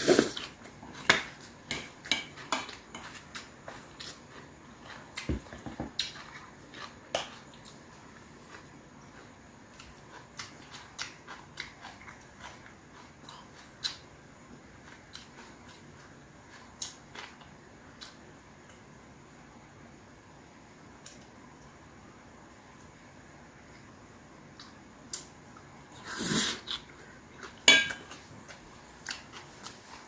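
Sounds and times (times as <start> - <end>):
person chewing crunchy food: 0.0 - 14.1, 14.7 - 18.2, 26.5 - 30.0.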